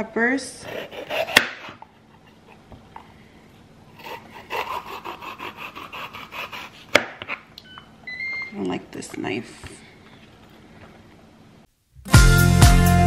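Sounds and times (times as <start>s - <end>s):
knife cutting pepper: 0.6s - 1.9s, 4.0s - 7.5s.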